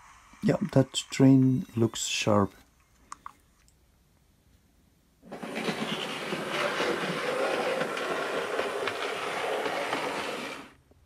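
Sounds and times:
model train rolling on track: 5.3s - 10.8s.

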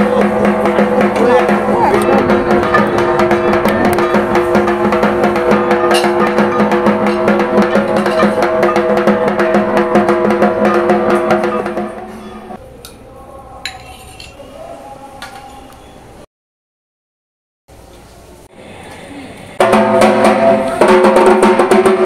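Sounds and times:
fast dense drumming: 0.0s - 12.1s, 19.6s - 22.0s
steady held tone: 0.0s - 12.6s.

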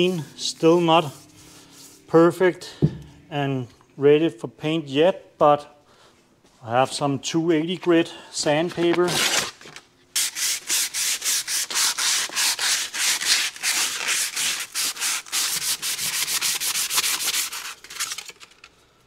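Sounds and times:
sandpaper rubbing on metal: 0.0s - 2.1s, 10.2s - 18.2s.

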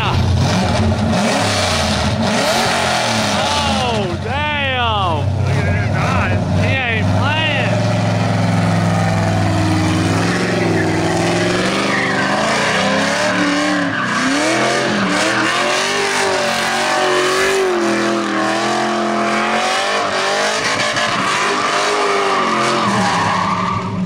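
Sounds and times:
car engine revving: 0.0s - 24.0s
tyres squealing: 5.5s - 18.4s.

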